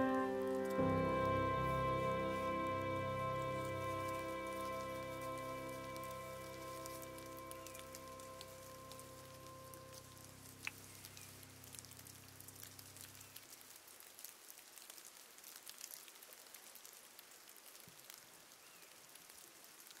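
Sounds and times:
stream water plinking: 0.0s - 13.3s.

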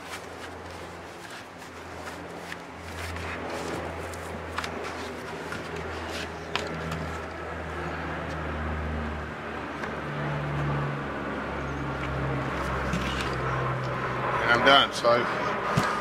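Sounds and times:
low motor drone: 0.0s - 16.0s.

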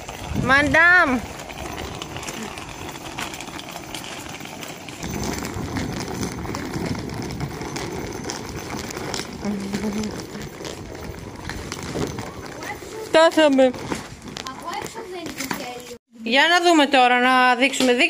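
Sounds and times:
footsteps of people walking: 1.2s - 16.0s.

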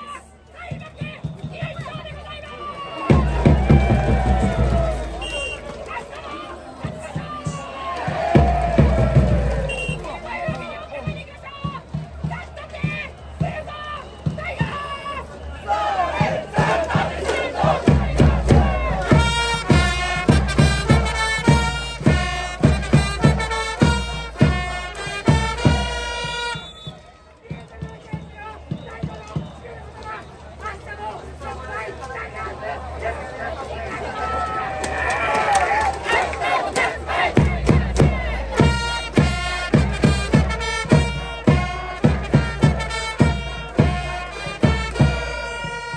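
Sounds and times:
steady drum beat: 3.0s - 5.8s, 6.8s - 14.7s, 15.7s - 26.7s, 36.8s - 45.9s
trumpets playing held notes: 3.2s - 6.0s, 8.6s - 10.4s, 16.0s - 26.9s, 38.3s - 45.9s.

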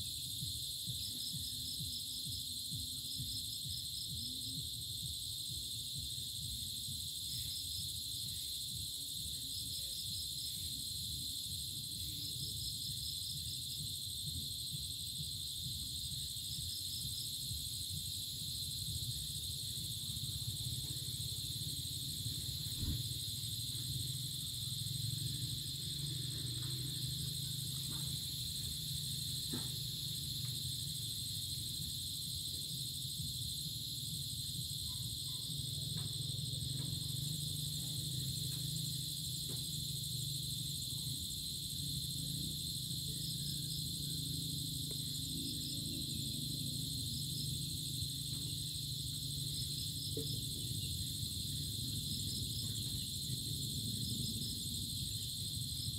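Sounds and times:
crickets and cicadas droning: 0.0s - 55.9s
pulsed insect chirp: 0.0s - 55.9s.

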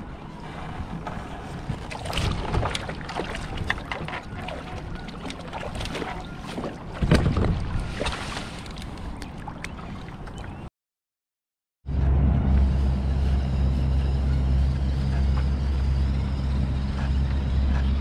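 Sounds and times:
water splashing: 1.5s - 10.7s.

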